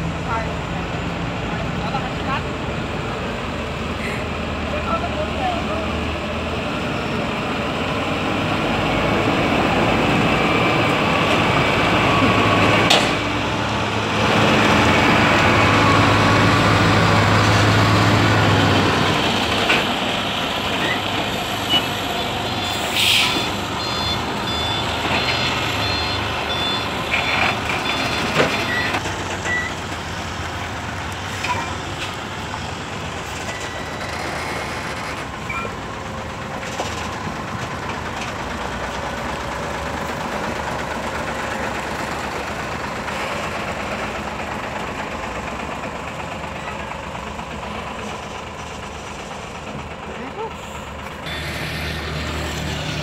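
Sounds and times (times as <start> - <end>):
diesel truck engine running: 0.0 - 53.0
reversing beeper: 20.8 - 29.8, 33.4 - 35.8, 51.3 - 53.0
air hiss: 22.8 - 23.5.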